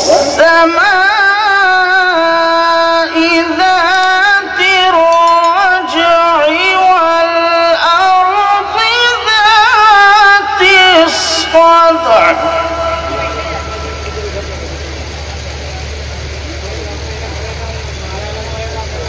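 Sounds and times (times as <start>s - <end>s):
man chanting into a microphone: 0.0s - 5.1s, 5.8s - 14.2s.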